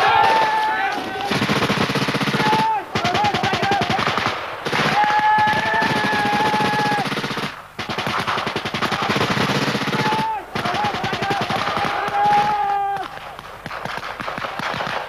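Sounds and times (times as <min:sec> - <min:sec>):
automatic gunfire: 0:01.2 - 0:15.0.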